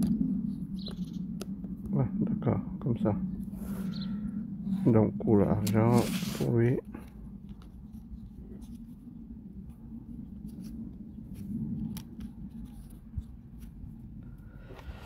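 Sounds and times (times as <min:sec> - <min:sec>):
low steady hum: 0:00.0 - 0:15.0
plywood sheets sliding: 0:05.9 - 0:06.5.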